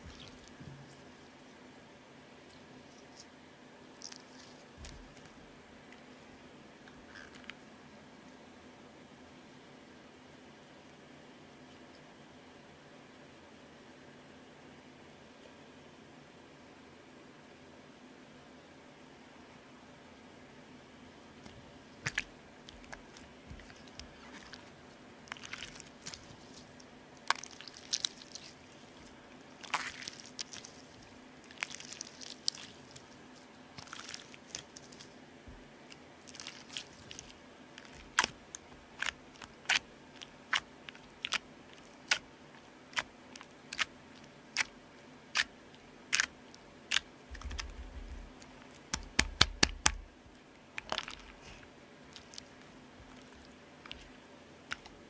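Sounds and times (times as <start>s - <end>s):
slime squelching: 0.0s - 1.2s, 3.9s - 5.4s, 21.4s - 45.5s, 46.1s - 50.1s, 50.8s - 55.0s.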